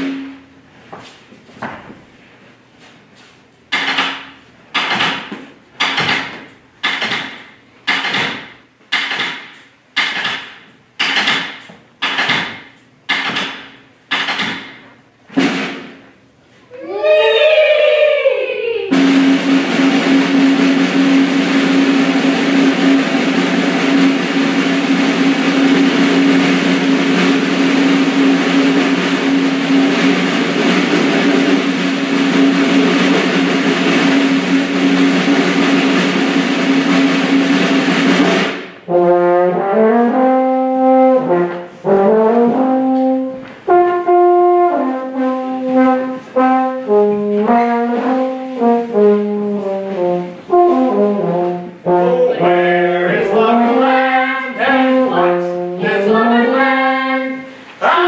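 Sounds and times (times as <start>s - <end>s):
brass instruments playing: 0.0s - 0.6s, 18.9s - 58.0s.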